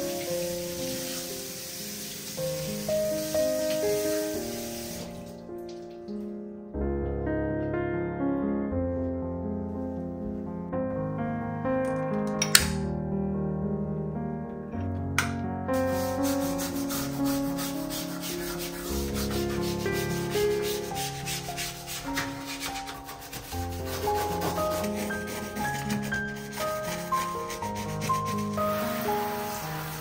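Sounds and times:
soft background music: 0.0 - 30.0
brush scrubbing a steel sink: 15.7 - 30.0.

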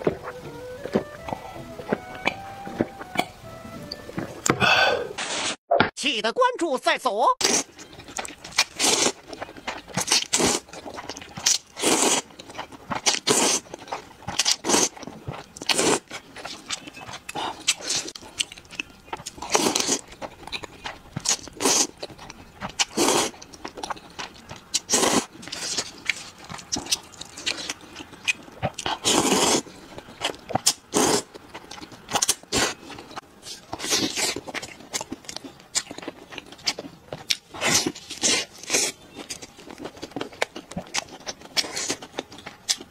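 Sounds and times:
wet chewing: 7.4 - 42.9
slurping noodles: 8.6 - 9.2, 10.0 - 10.7, 11.5 - 12.3, 13.0 - 13.7, 14.4 - 15.0, 15.7 - 16.6, 19.4 - 20.0, 21.3 - 22.0, 22.9 - 23.4, 24.9 - 26.2, 28.8 - 29.7, 30.9 - 31.3.

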